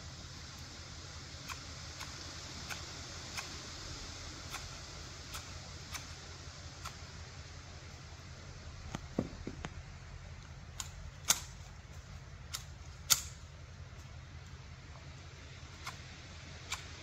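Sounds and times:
steady low hum: 0.0s - 17.0s
garden shears snipping: 1.4s - 3.6s, 4.4s - 7.1s, 10.4s - 14.6s, 15.6s - 17.0s.

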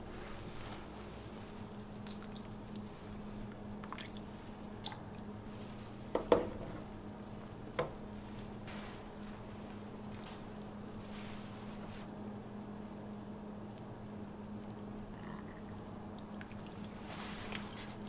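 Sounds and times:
steady low hum: 0.0s - 18.0s
liquid sloshing and dripping: 1.4s - 5.5s, 14.6s - 18.0s.

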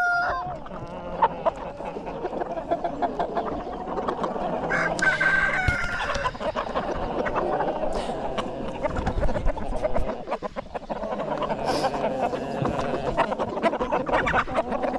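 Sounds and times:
rooster crowing: 0.0s - 0.5s, 4.7s - 6.4s
chickens clucking: 0.0s - 14.9s.

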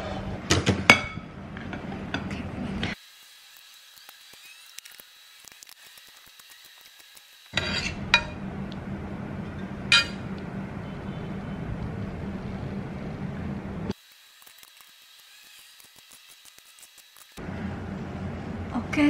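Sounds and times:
steady low hum: 7.6s - 13.9s, 17.4s - 19.0s
utensils clinking on bowl and pan: 9.9s - 10.2s.

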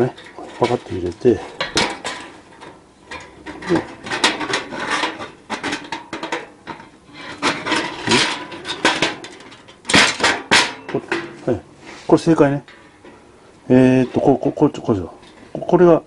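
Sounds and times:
metal plates clinking and rattling: 0.0s - 11.7s.

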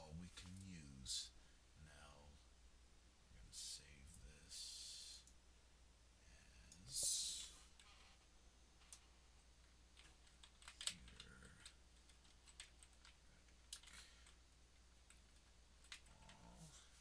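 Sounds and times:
low steady hum: 0.0s - 17.0s
keyboard and mouse clicks: 10.0s - 14.4s, 15.1s - 16.4s.

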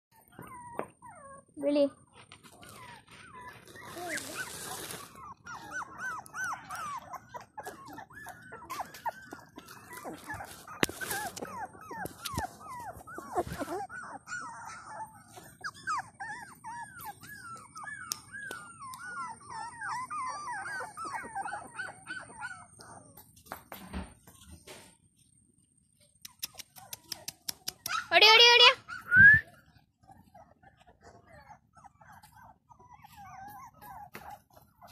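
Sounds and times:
puppies whining and whimpering: 0.1s - 34.9s
rustling noise: 2.1s - 5.6s, 8.8s - 13.9s.

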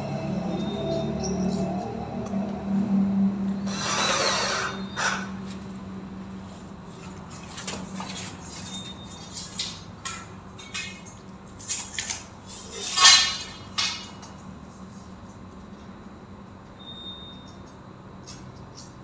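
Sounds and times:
tools and hardware clattering: 7.0s - 14.4s.

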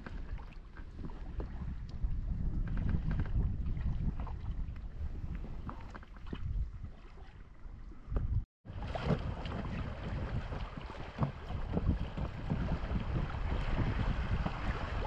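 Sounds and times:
water splashing against inflatable raft: 0.0s - 7.6s, 8.6s - 15.0s
wind buffeting microphone: 0.0s - 15.0s.

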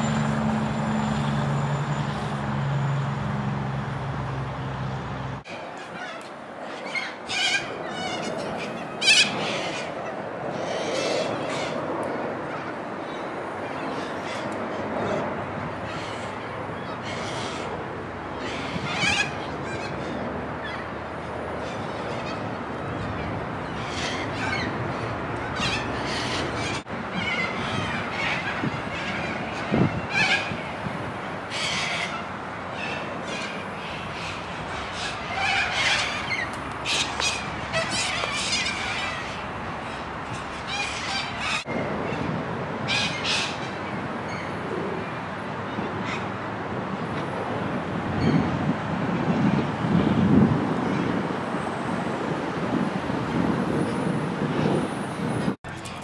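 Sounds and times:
outdoor background noise: 0.0s - 56.0s
birds scratchy calls: 5.6s - 41.7s, 42.9s - 44.6s, 55.7s - 56.0s
cockatoos squawking: 5.8s - 11.8s, 15.8s - 21.0s, 21.6s - 30.7s, 31.4s - 41.7s, 42.9s - 44.5s.

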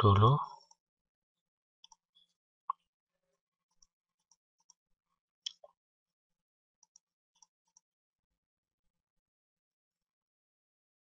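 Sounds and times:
computer mouse clicks: 1.8s - 2.1s, 6.8s - 7.9s.

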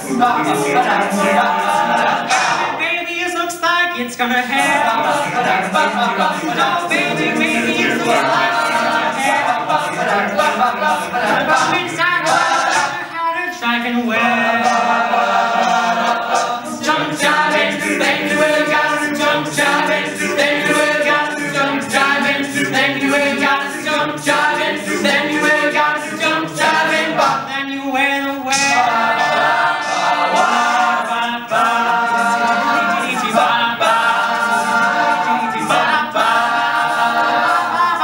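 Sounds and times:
percussive beat: 0.0s - 3.1s, 4.0s - 13.2s, 14.2s - 27.5s, 28.4s - 38.0s
male a cappella group singing: 0.0s - 38.0s.

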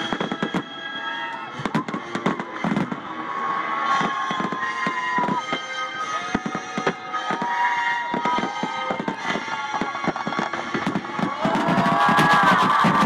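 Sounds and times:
firework shells bursting: 6.4s - 13.0s.

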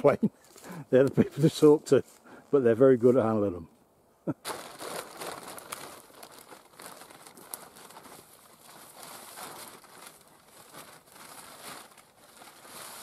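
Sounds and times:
hammock crinkling and rustling: 4.3s - 13.0s.

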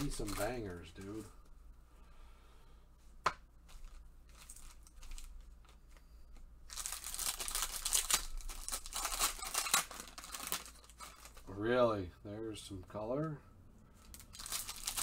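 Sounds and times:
wrapper and cards crackling: 0.0s - 1.4s, 3.6s - 11.6s, 14.0s - 15.0s.

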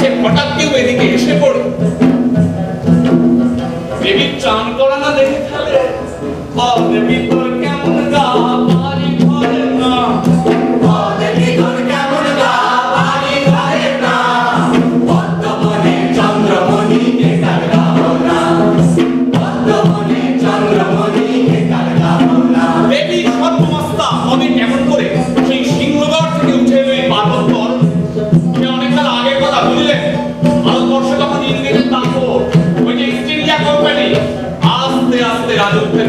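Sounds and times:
drums beating: 0.0s - 36.0s
chorus of voices singing: 9.4s - 25.8s.

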